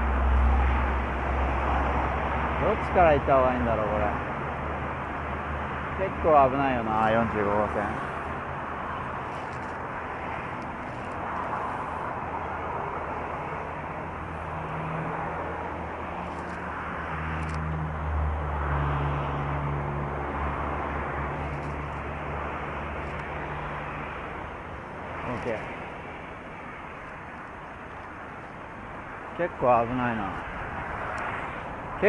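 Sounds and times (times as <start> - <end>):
highway traffic noise: 0.0 - 32.0.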